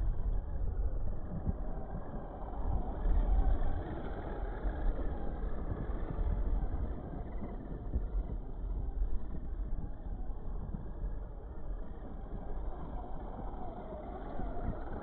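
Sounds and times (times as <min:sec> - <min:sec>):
toy buggy rumbling over dirt: 0:01.2 - 0:10.3, 0:11.4 - 0:15.0.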